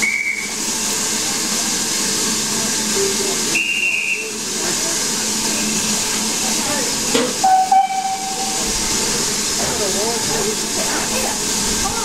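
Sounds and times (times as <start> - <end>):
high steam whistle: 0.0 - 0.6, 3.4 - 4.5, 7.4 - 8.8
steam hissing: 0.0 - 12.0.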